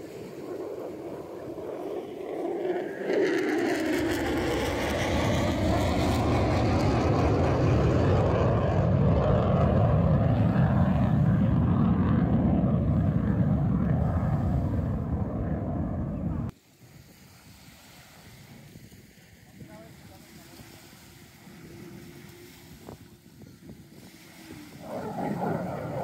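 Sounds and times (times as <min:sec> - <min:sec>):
fighter jet roaring past: 0:00.0 - 0:16.5, 0:24.0 - 0:26.0.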